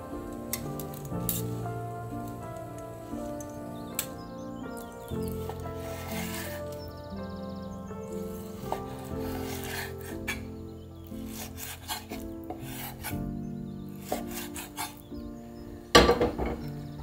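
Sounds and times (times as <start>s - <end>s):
background music: 0.0s - 17.0s
frying pan clattering on grate: 15.9s - 16.7s.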